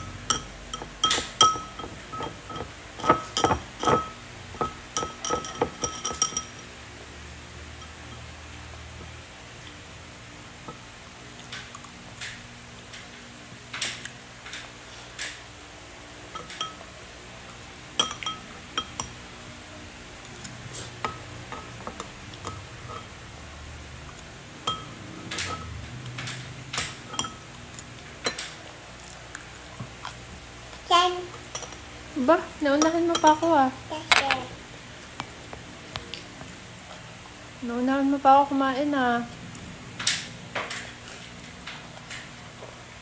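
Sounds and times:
spoon knocking in a bowl: 0.0s - 6.6s, 18.0s - 19.2s, 24.6s - 25.7s.

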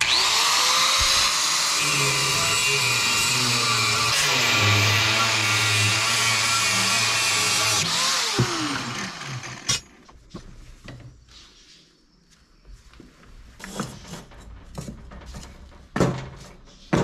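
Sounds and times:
angle grinder cutting steel: 0.0s - 10.0s.

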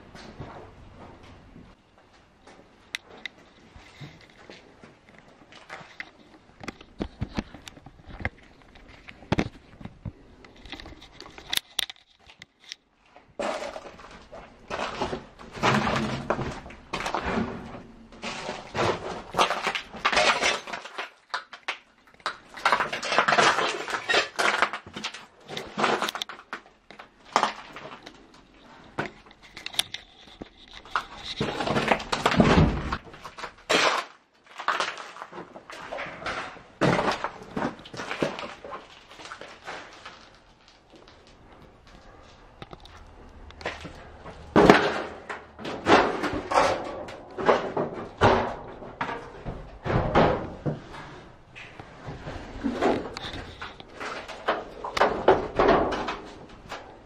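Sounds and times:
footsteps on debris: 30.2s - 49.9s.

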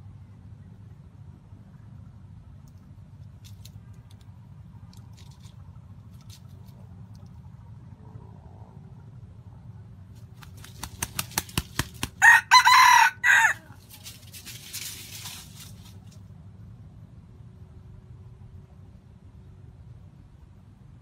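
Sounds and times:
sharp claps: 10.4s - 12.2s
rooster crowing: 12.2s - 13.9s.

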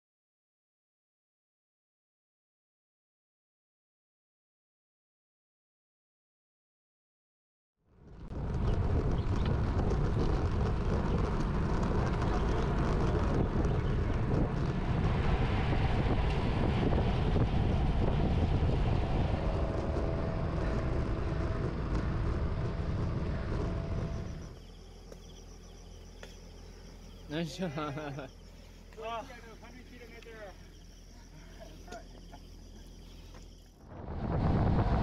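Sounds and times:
wind rushing over microphone: 8.0s - 24.9s, 33.8s - 35.0s.

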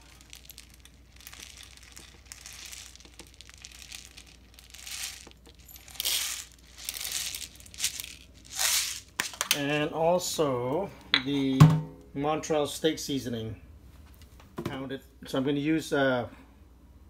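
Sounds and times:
peppercorns tipped into plastic cup: 0.0s - 9.6s
plastic packet crinkling: 0.0s - 9.6s.

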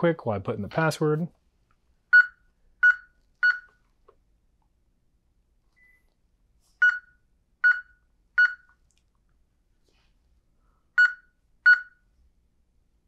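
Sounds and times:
keypad beeps: 2.1s - 3.8s, 6.8s - 8.7s, 11.0s - 12.0s.

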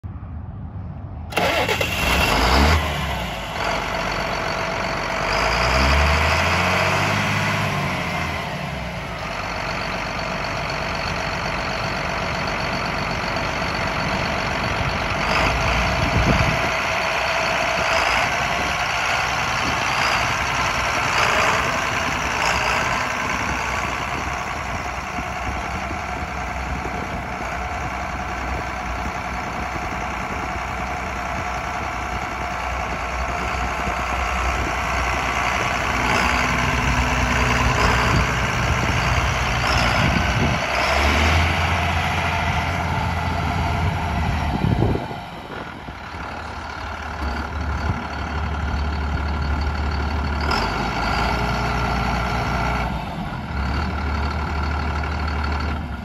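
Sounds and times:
tractor diesel engine running: 0.7s - 56.0s.

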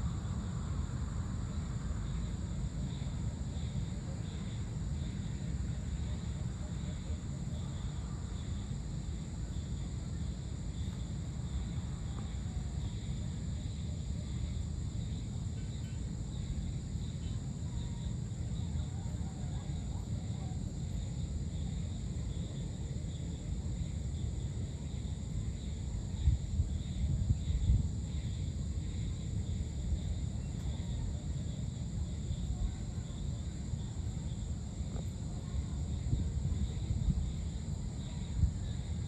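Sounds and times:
crickets and insects chirring: 0.0s - 39.0s.

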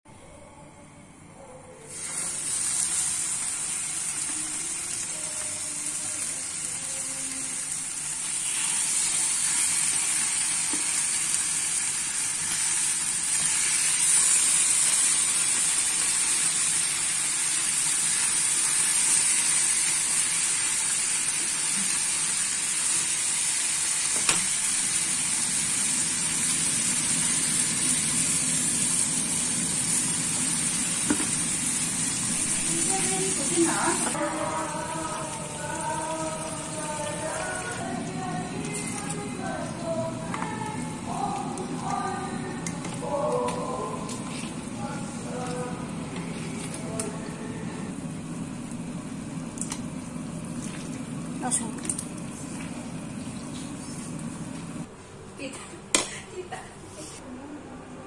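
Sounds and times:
chicken sizzling in a pan: 1.9s - 37.9s.

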